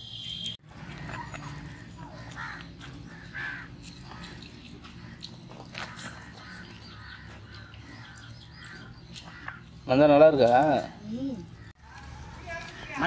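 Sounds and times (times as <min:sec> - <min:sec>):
crows cawing: 0:01.2 - 0:09.9.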